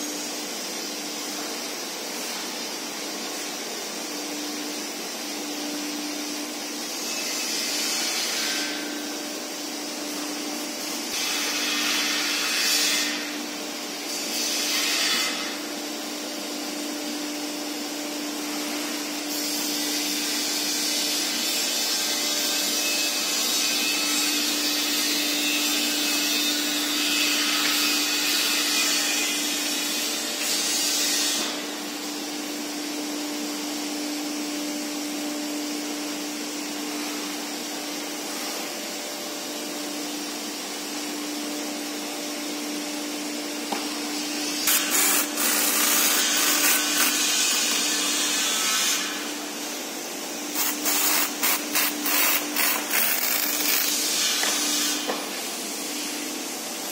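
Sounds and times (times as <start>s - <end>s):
workshop hum: 0.0s - 56.9s
pneumatic drill running: 43.7s - 48.4s, 49.1s - 55.7s
compressed air hissing: 50.5s - 56.2s.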